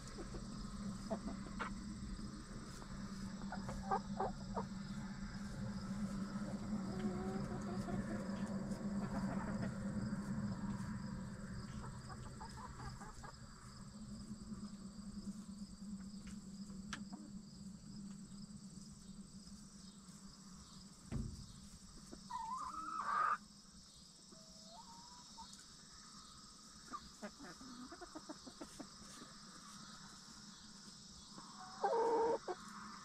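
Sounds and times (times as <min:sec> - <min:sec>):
hens calling: 0:00.0 - 0:10.0, 0:11.6 - 0:13.6, 0:22.0 - 0:23.4, 0:26.8 - 0:29.3, 0:31.4 - 0:32.7
low hum: 0:00.0 - 0:22.1
crickets chirping: 0:00.0 - 0:33.0
dull thump: 0:21.1 - 0:21.6.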